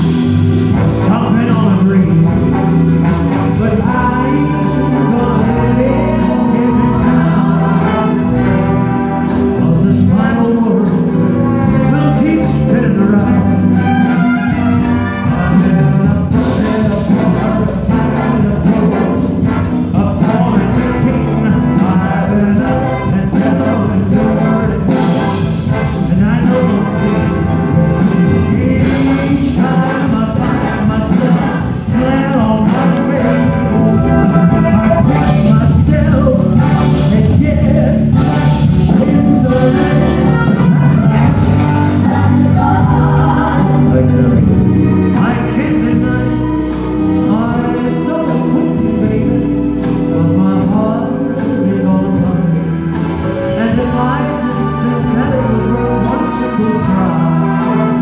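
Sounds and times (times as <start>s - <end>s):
live band with strings and brass: 0.0s - 58.0s
man singing lead: 0.0s - 58.0s
women singing backing vocals: 41.0s - 44.5s.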